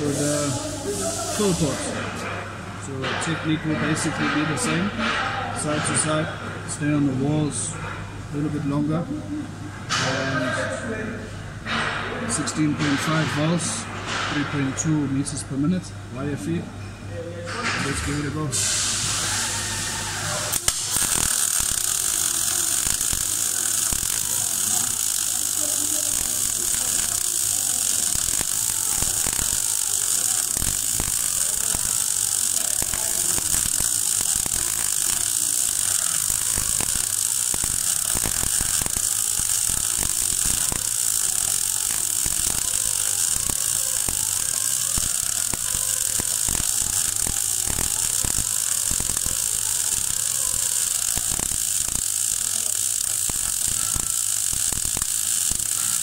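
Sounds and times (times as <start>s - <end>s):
welding arc crackling and hissing: 0.0s - 2.3s, 17.6s - 56.0s.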